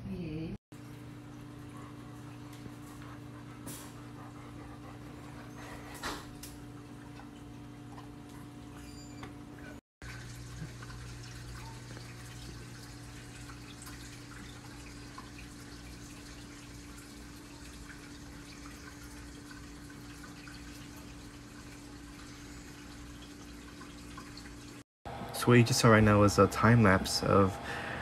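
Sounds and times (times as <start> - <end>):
low pump hum: 0.0 - 28.0
water trickling and dripping: 4.2 - 8.7, 10.0 - 24.8.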